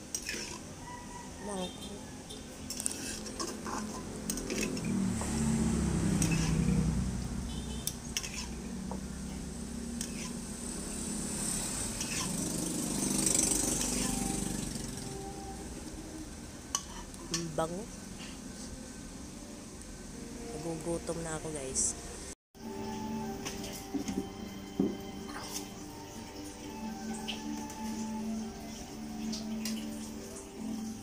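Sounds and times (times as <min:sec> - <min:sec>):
metal spatula scraping wok: 0:00.0 - 0:00.7, 0:02.6 - 0:06.9, 0:07.8 - 0:08.8, 0:09.9 - 0:15.2, 0:16.7 - 0:17.6.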